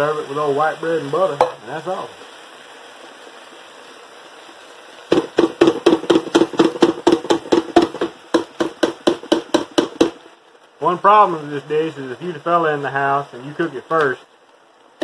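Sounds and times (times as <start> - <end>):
faint steady hiss: 0.0 - 15.0
metal can knocking against pot: 5.1 - 10.2.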